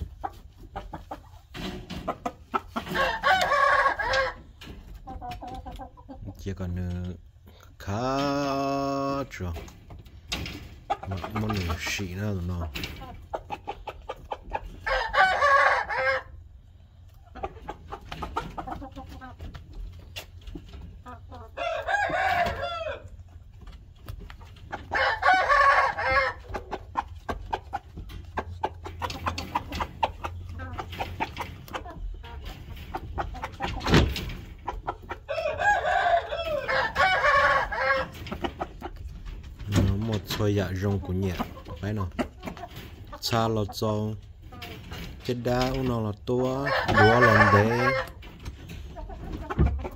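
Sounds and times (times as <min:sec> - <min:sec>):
rooster crowing: 0:21.6 - 0:23.1, 0:35.3 - 0:37.4.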